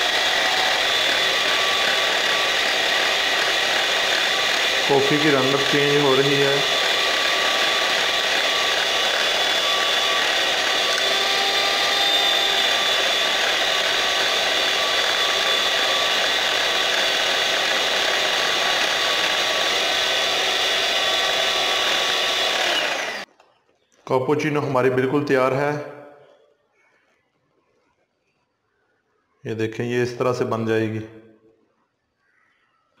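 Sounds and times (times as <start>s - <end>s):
electric hand mixer whipping: 0.0s - 23.3s.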